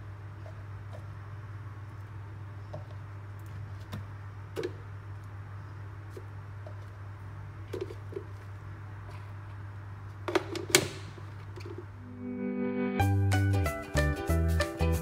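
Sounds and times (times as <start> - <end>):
steady low hum: 0.0 - 10.3.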